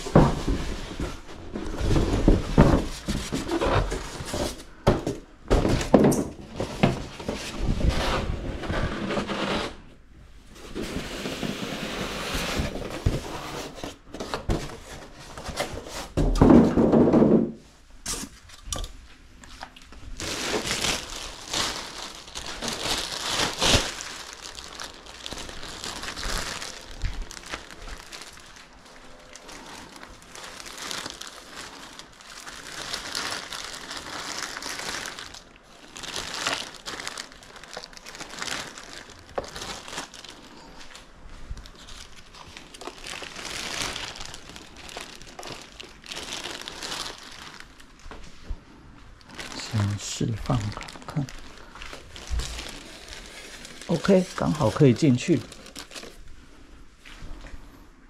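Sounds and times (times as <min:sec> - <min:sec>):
packing material rustling: 0:19.4 - 0:48.5, 0:49.2 - 0:57.5.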